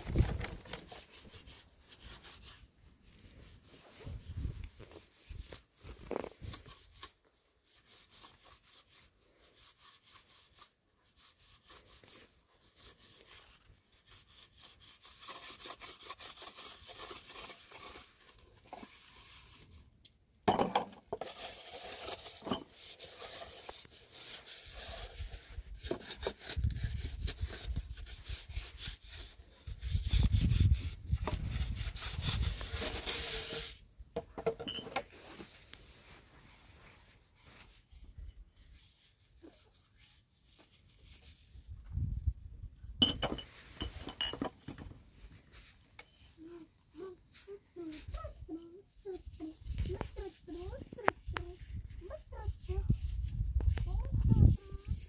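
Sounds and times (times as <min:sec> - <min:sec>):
hand tool scraping wood: 0:00.0 - 0:19.8, 0:20.8 - 0:35.8.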